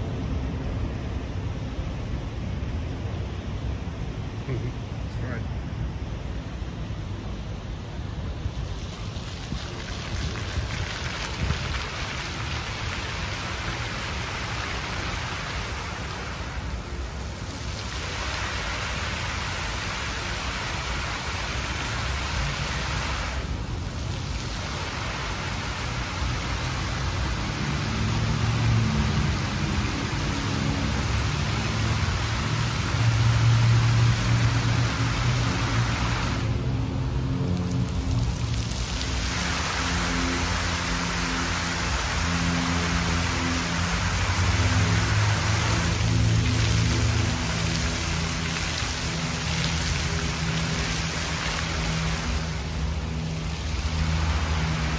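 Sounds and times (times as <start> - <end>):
fountain water splashing: 0.0 - 54.9.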